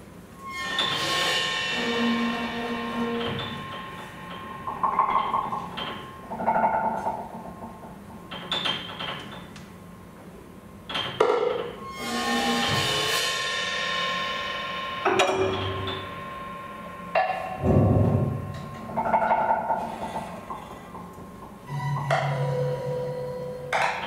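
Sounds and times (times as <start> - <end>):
piano: 0.0 - 24.0
drum kit: 11.8 - 20.1
synthesizer held tones: 21.7 - 23.8.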